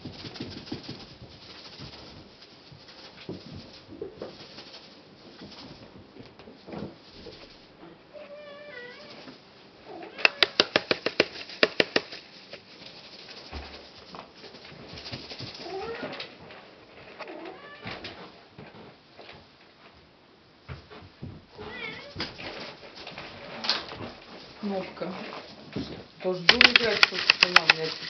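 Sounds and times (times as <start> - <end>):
rapid sharp clicks: 10.2 - 12.6, 26.4 - 28.0.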